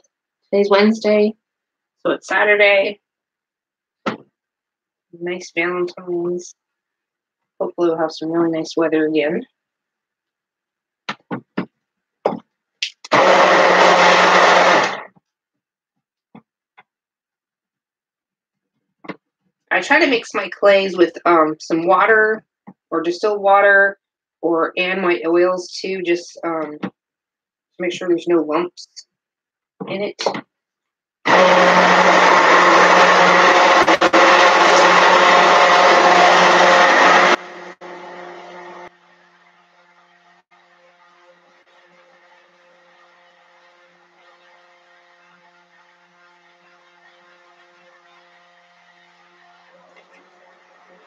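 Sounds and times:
stick blender running: 13.1 - 15.1, 31.3 - 51.0.

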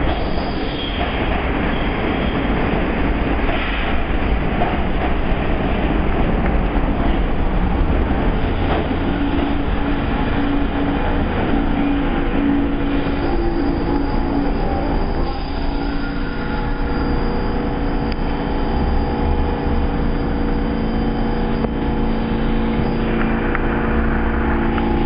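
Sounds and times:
subway train humming: 0.0 - 25.0.

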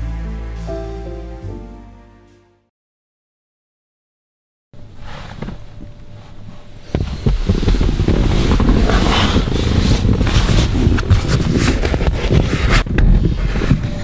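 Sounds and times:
wind buffeting microphone: 6.7 - 14.0.

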